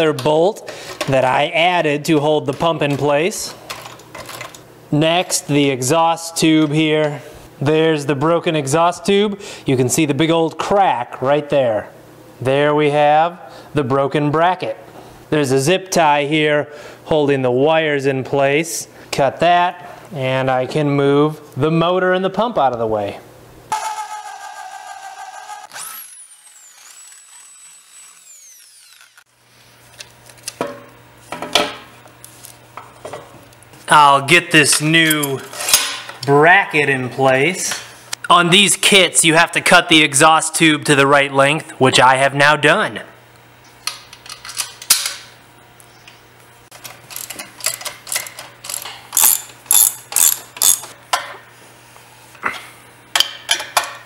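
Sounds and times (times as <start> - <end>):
cordless drill boring through steel: 23.7 - 29.3
metal tools clinking: 35.0 - 35.9, 46.8 - 50.9
ratchet wrench clicking: 47.1 - 51.0.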